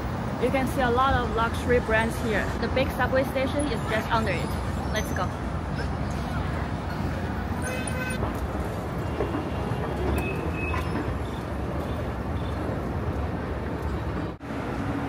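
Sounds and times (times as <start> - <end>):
rumble of passing vehicles: 0.0 - 15.0
short squeal or horn: 7.6 - 8.2.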